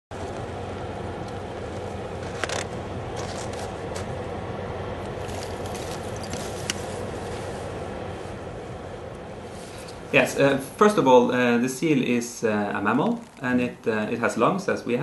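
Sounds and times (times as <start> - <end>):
low rushing noise: 0.1 - 15.0
sharp cracks and crackles: 2.2 - 4.2.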